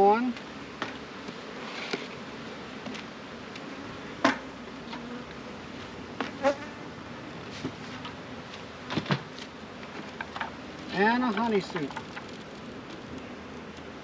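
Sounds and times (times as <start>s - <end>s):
honey bees buzzing: 0.0s - 14.0s
knocks of hive equipment: 4.2s - 5.1s, 8.8s - 10.6s, 11.2s - 12.4s.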